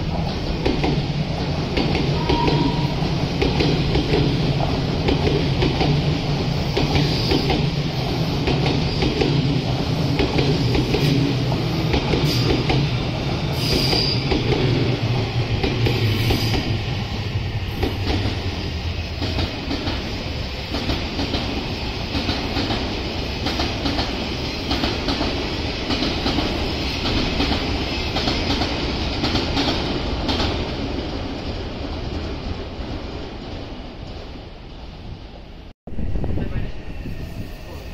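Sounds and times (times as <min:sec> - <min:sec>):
train low rumble: 0:35.6 - 0:37.9.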